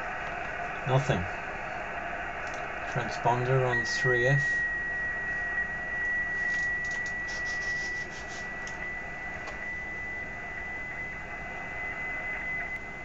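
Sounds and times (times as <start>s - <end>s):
radio static hiss: 0.1s - 4.6s, 6.2s - 8.7s
thin high whistle: 3.5s - 12.8s.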